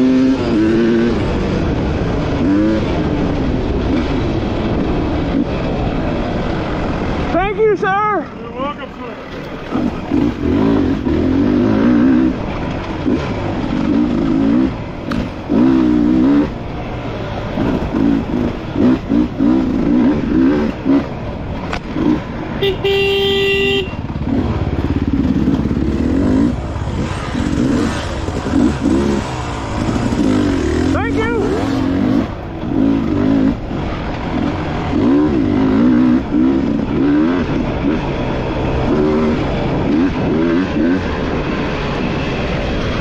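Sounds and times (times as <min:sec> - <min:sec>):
dirt bike engine revving: 0:00.0 - 0:08.0, 0:08.6 - 0:43.0.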